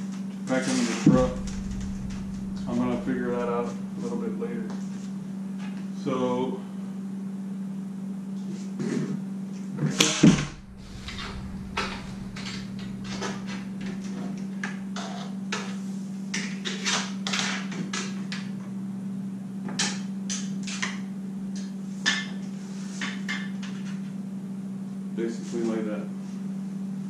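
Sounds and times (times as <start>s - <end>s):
loud clatter: 1.1s - 3.9s, 10.2s - 14.8s
steady hum: 1.1s - 4.2s, 10.2s - 15.0s.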